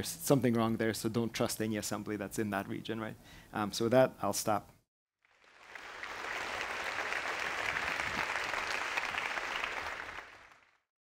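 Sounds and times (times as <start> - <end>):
audience applauding: 5.2 - 10.9.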